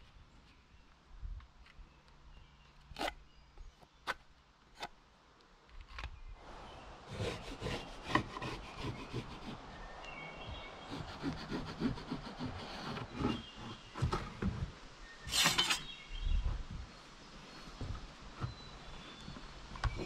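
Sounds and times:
hand tool scraping wood: 7.1 - 9.6, 10.9 - 14.4, 15.3 - 15.9.

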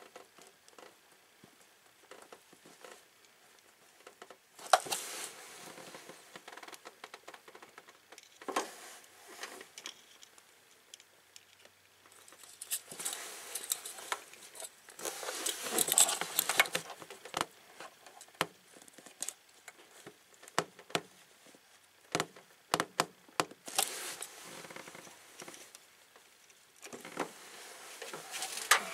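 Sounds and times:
solder sizzling and crackling: 23.6 - 28.9.

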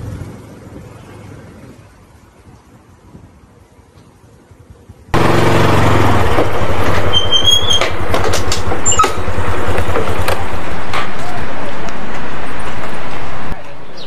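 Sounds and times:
motor scooter engine running: 4.2 - 11.8
brief high squeaks: 7.0 - 8.0, 8.8 - 9.2.

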